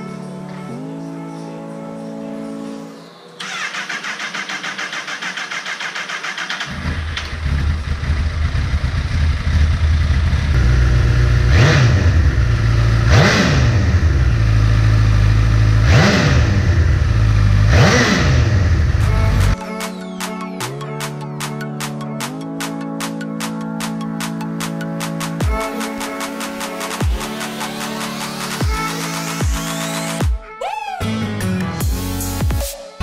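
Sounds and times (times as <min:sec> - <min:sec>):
motorcycle starter cranking: 0:03.4 - 0:08.8
engine revving: 0:03.4 - 0:19.6
motorcycle engine idling: 0:03.4 - 0:19.6.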